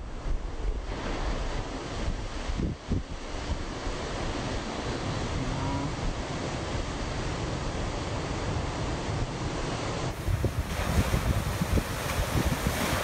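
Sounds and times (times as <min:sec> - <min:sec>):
wind rumbling on microphone: 0:00.0 - 0:13.0
ocean surf breaking: 0:06.0 - 0:13.0.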